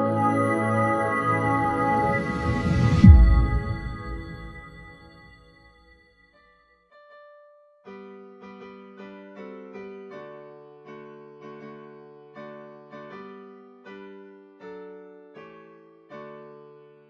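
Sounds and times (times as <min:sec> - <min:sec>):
slow gentle piano chords: 0:00.0 - 0:05.1.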